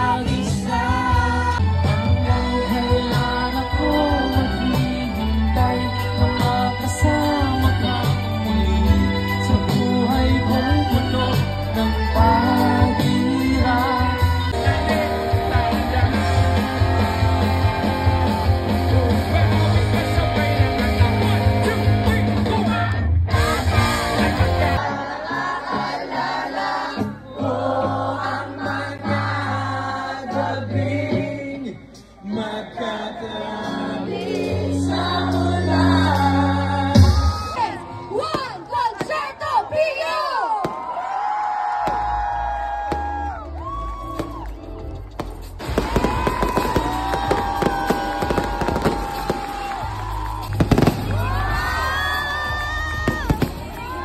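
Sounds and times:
live rock band with singer: 0:00.0 - 0:25.9.

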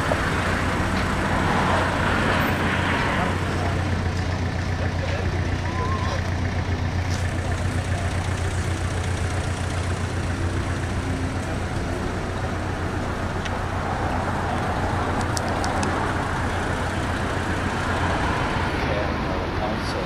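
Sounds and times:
car engine idling: 0:00.0 - 0:20.0.

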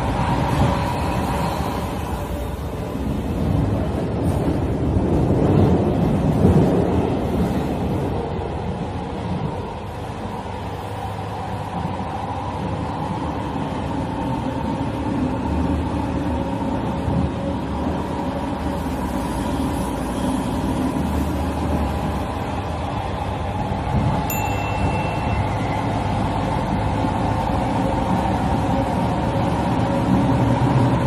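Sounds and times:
subway train wheels rumbling: 0:00.0 - 0:31.0.

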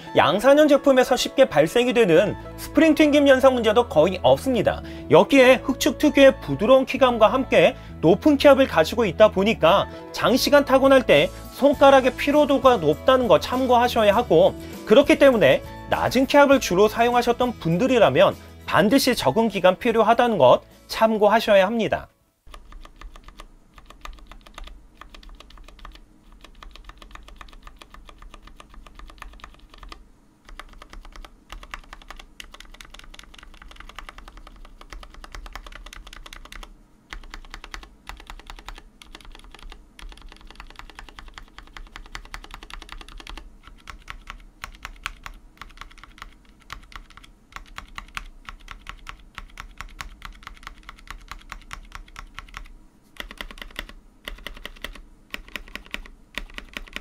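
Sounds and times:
mechanical keyboard clacks: 0:22.5 - 0:57.0.

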